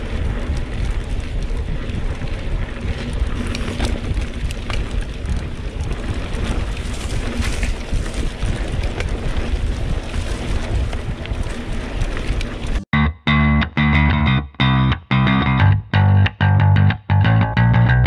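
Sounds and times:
bike clicks and rattles: 0.0s - 12.9s
wind rumbling on microphone: 0.0s - 12.9s.

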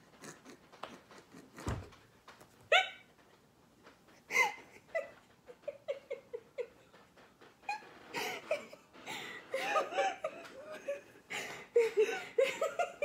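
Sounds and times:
people giggling: 4.4s - 7.0s, 8.2s - 13.0s.

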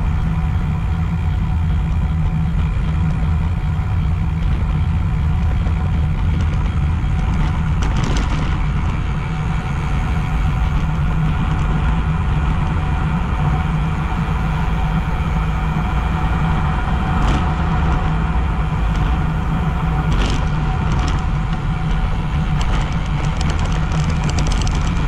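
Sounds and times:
tyre noise on asphalt: 0.0s - 25.0s
wind rushing over microphone: 3.9s - 25.0s.

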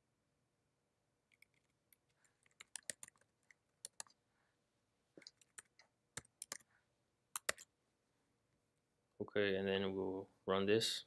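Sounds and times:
typing on computer keyboard: 1.3s - 4.2s, 5.2s - 6.7s, 7.4s - 7.7s.

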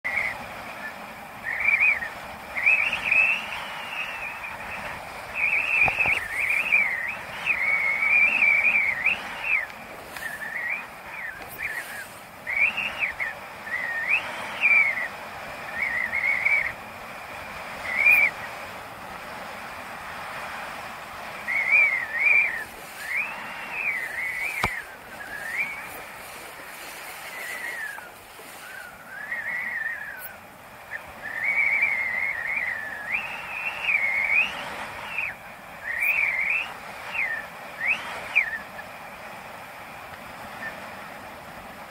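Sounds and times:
rushing water: 0.0s - 41.9s
wind: 0.0s - 41.9s
person whistling a tune: 1.4s - 15.1s, 15.7s - 16.8s, 17.8s - 18.4s, 21.4s - 30.4s, 31.2s - 38.6s.

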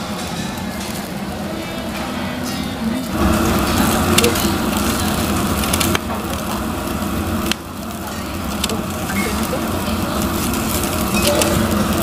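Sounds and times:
meat sizzling on a grill: 0.0s - 12.0s
sharp crackles: 3.0s - 12.0s.

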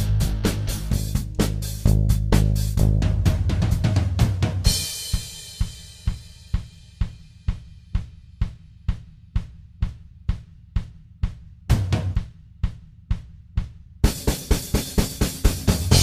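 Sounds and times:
full band music: 0.0s - 3.8s.

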